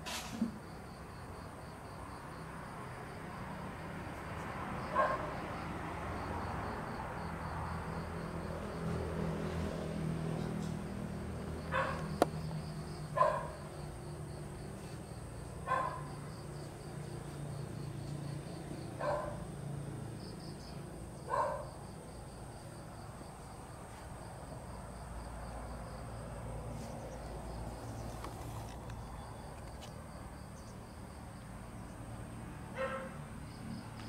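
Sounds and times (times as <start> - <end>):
crickets chirping: 0.4 - 34.0
dog barking: 4.9 - 5.3, 11.7 - 12.1, 13.2 - 13.6, 15.6 - 16.1, 19.0 - 19.4, 21.3 - 21.7, 32.8 - 33.2.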